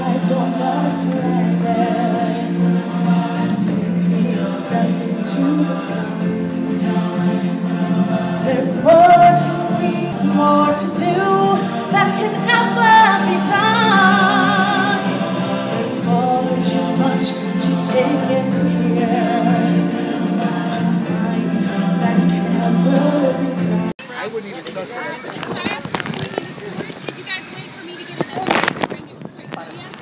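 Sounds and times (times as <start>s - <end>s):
choir singing with accompaniment: 0.0s - 24.0s.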